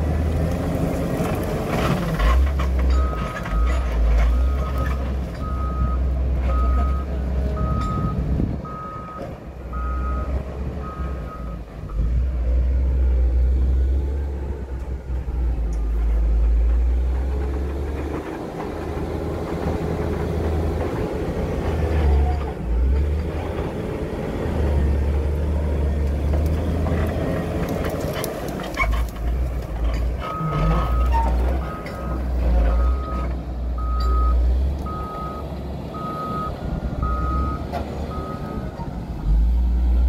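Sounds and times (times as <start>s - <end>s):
diesel engine working under load: 0.0s - 40.0s
reversing alarm beeping: 4.5s - 11.6s, 33.8s - 38.7s.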